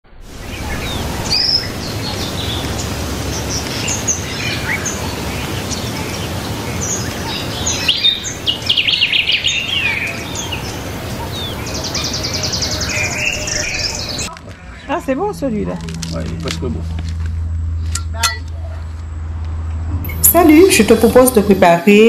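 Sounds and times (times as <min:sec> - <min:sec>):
low outdoor rumble: 0:00.0 - 0:22.0
birds chirping and calling: 0:00.3 - 0:15.5.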